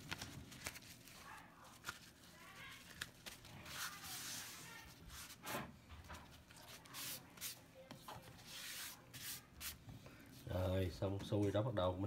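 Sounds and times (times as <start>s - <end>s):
paper towel rustling: 0.0s - 10.6s.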